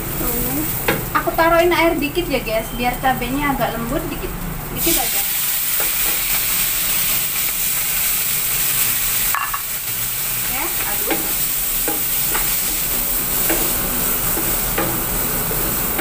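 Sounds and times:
chillies sizzling in a frying pan: 0.0 - 16.0.

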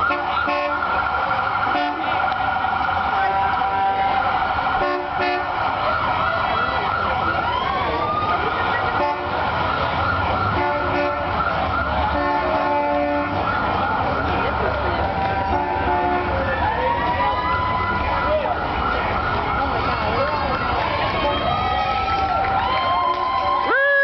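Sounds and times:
horn blasts: 0.0 - 1.0, 1.6 - 2.4, 3.1 - 4.2, 4.8 - 5.7, 8.8 - 9.5, 10.4 - 13.6, 15.0 - 16.5
sirens wailing: 0.0 - 24.0.

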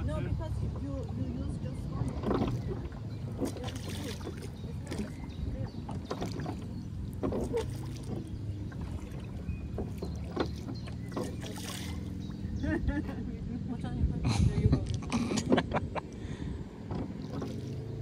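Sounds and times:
oars dipping into water: 0.0 - 13.5, 14.5 - 18.0
low steady rumble: 0.0 - 18.0
wooden oars in oarlocks: 1.8 - 12.5, 16.8 - 18.0
knocks and clunks: 2.0 - 5.1, 5.8 - 11.5, 16.8 - 17.8.

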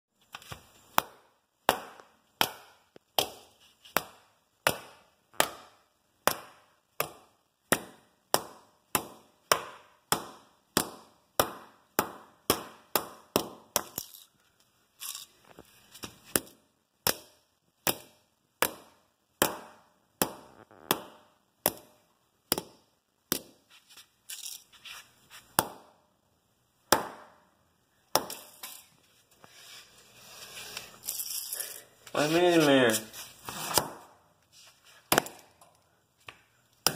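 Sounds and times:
hand tool striking plastic on concrete: 35.1 - 35.7.

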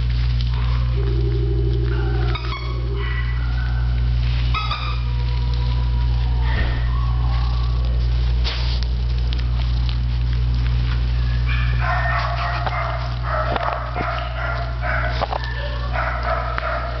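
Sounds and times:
low hum: 0.0 - 17.0
small dog whining: 0.8 - 8.0.

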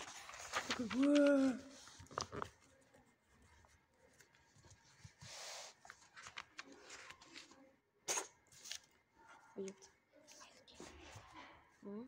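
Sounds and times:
paper rubbing and tapping: 0.0 - 7.5
paper rustle: 0.0 - 11.5.

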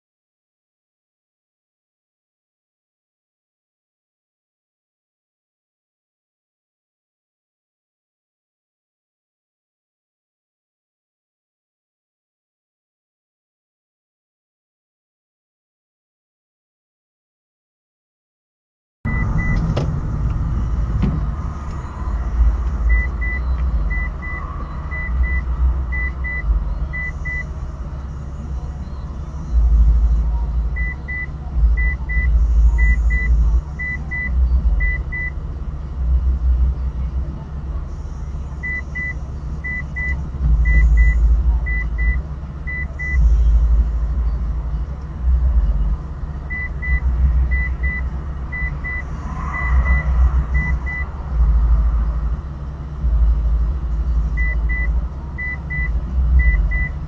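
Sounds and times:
turn signal ticking: 19.1 - 36.8, 38.2 - 57.0
car engine idling: 19.1 - 57.0.

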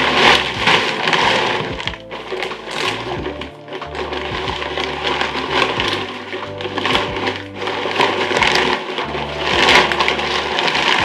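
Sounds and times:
background music with bass notes: 0.0 - 11.0
fabric rustling: 0.0 - 11.0
plastic crinkling: 0.0 - 11.0.

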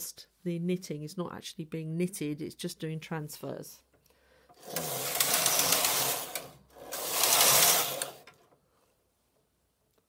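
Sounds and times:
knitting machine carriage rattling: 4.6 - 8.5.

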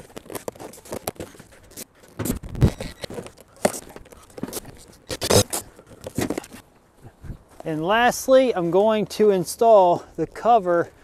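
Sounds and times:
plastic parts scraping and knocking: 0.0 - 6.6.

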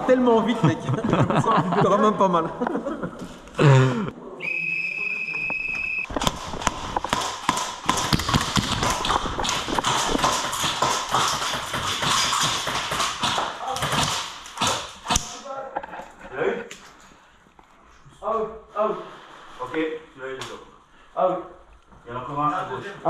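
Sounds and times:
high steady signal tone: 4.4 - 6.1
rapid footsteps on hard floor: 6.1 - 15.3.

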